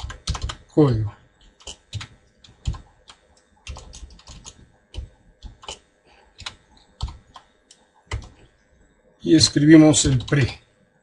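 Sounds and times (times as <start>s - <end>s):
computer keyboard typing: 0.0s - 0.7s, 1.4s - 8.5s, 9.9s - 10.5s.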